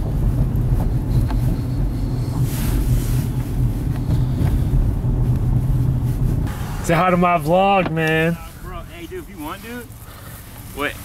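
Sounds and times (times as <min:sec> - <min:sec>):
wind on microphone: 0:00.0 - 0:06.9
engine and road rumble: 0:00.0 - 0:11.0.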